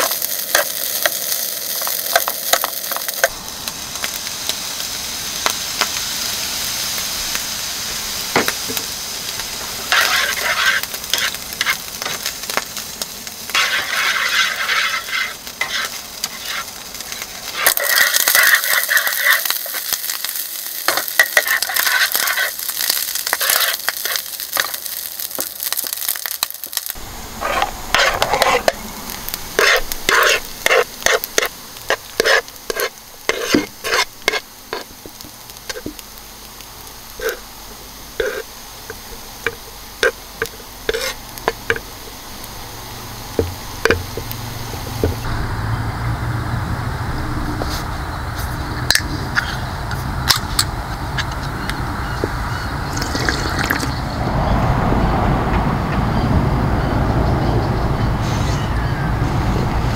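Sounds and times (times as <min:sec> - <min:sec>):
food sizzling in a frying pan: 0:00.0 - 0:45.5
utensil scraping a pan: 0:09.9 - 0:12.3, 0:13.5 - 0:24.8, 0:27.4 - 0:28.8, 0:29.5 - 0:36.0, 0:38.2 - 0:41.9.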